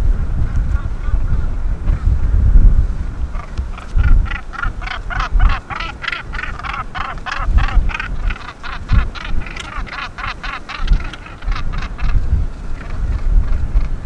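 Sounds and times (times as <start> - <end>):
gannets calling harshly: 3.3 - 14.0.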